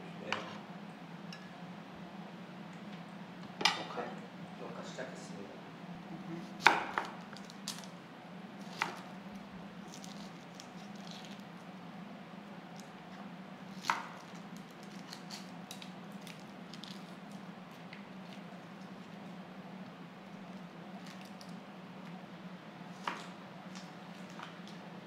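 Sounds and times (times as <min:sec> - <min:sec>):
onion skin crackling: 0:09.8 - 0:11.6.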